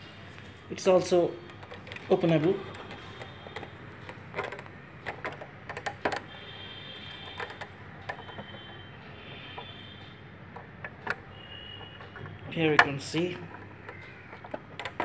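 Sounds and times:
fingers clicking toy model: 0:01.4 - 0:06.4, 0:07.0 - 0:08.8, 0:10.5 - 0:15.0.

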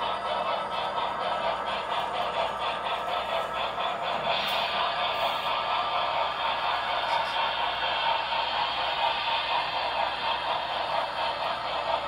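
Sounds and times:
model train rolling on track: 0:00.0 - 0:12.0.

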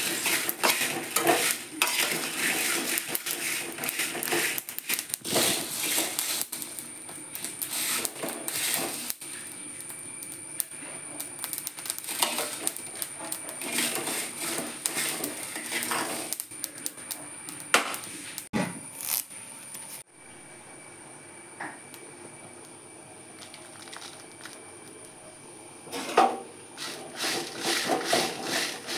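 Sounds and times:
metal spoon scraping pan: 0:00.0 - 0:06.6, 0:12.0 - 0:16.4, 0:26.8 - 0:28.9
seeds rattling in metal pan: 0:00.0 - 0:06.8, 0:11.2 - 0:16.6, 0:23.4 - 0:24.6, 0:26.8 - 0:28.9.

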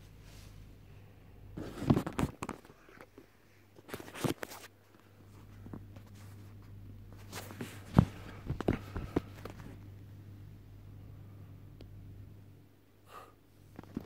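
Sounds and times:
low steady hum: 0:00.0 - 0:14.0
phone handling knocks and rustles: 0:07.4 - 0:09.8.

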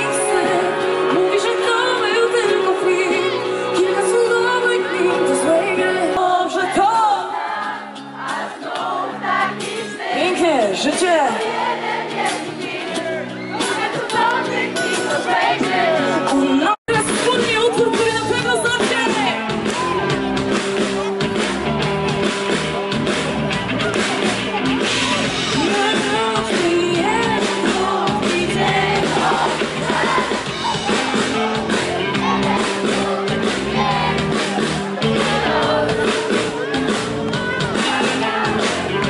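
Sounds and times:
person singing: 0:00.0 - 0:07.5, 0:35.0 - 0:39.0
rock band playing: 0:00.0 - 0:39.0.

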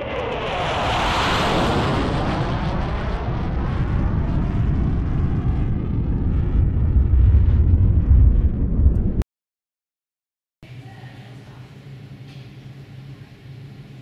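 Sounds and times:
jet engines roaring at takeoff: 0:00.0 - 0:09.2.

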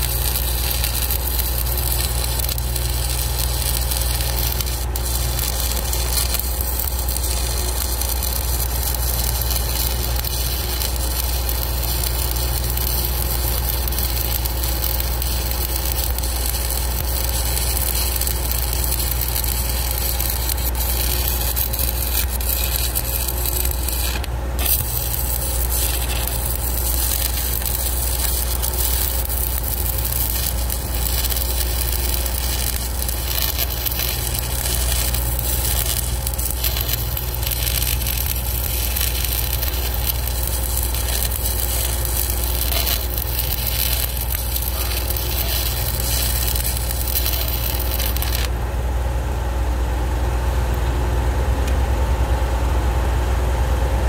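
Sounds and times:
welding arc crackling and sizzling: 0:00.0 - 0:48.6.

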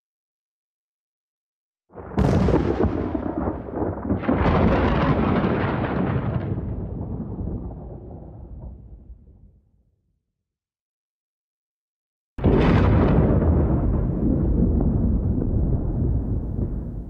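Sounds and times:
thunder crack: 0:01.9 - 0:09.5, 0:12.4 - 0:17.0
thunder rolling rumble: 0:02.0 - 0:09.5, 0:12.4 - 0:17.0.

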